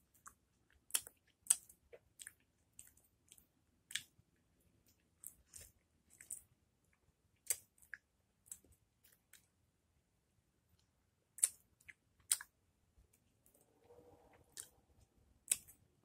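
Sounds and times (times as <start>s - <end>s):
wet mouth clicks and smacks: 0.2s - 4.1s, 7.4s - 8.7s, 11.4s - 12.5s, 15.5s - 15.8s.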